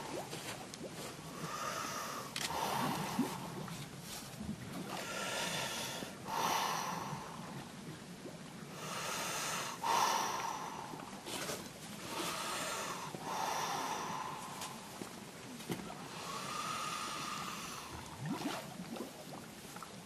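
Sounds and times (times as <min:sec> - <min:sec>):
deep rushing breaths: 0:12.0 - 0:14.9, 0:16.1 - 0:18.0.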